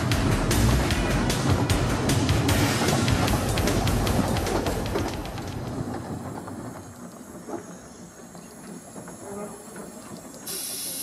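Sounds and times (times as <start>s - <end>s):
train wheels rumbling and clicking: 0.0s - 11.0s
soft hiss of steam: 5.6s - 11.0s.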